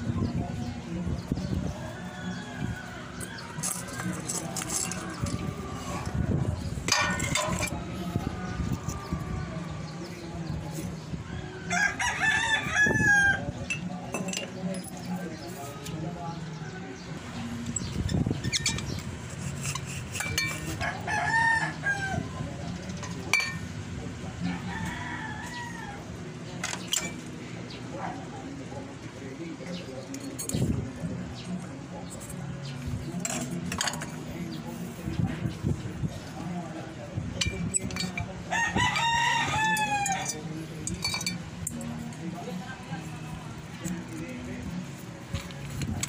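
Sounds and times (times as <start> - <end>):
metal clatter: 6.8 - 7.8, 18.4 - 20.8, 26.6 - 27.3, 37.4 - 38.3, 40.1 - 41.8
metal lamp clinking and rattling: 6.9 - 7.8, 13.7 - 15.1, 26.6 - 27.3, 37.4 - 38.3, 39.8 - 41.9
rooster crowing: 38.5 - 40.3.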